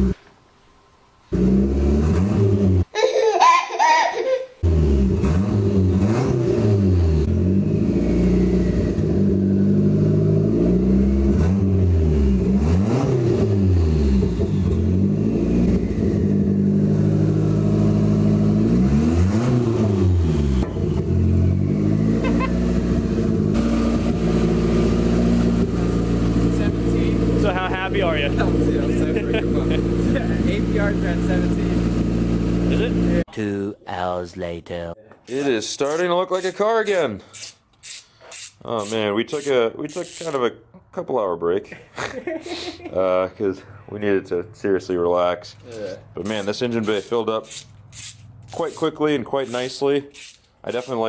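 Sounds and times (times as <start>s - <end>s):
car engine throttle blips: 4.6s - 33.3s.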